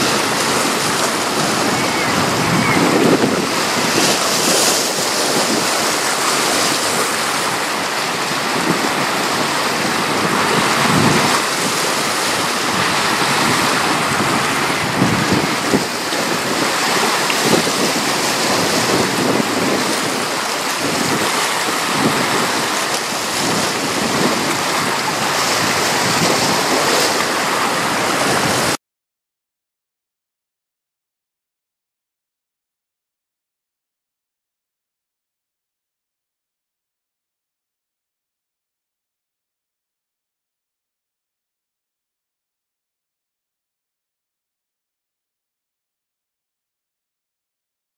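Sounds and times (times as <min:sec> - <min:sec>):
choppy river water washing: 0:00.0 - 0:28.8
wind gusting on microphone: 0:00.0 - 0:28.8.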